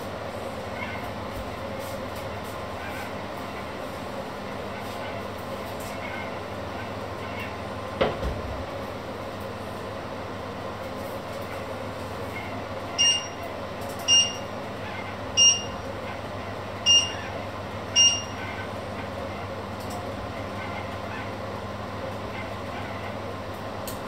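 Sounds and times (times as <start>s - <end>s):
steady background hum: 0.0s - 24.0s
cooktop touch control beeps: 13.0s - 13.4s, 14.0s - 14.5s, 15.4s - 15.8s, 16.9s - 17.2s, 18.0s - 18.4s.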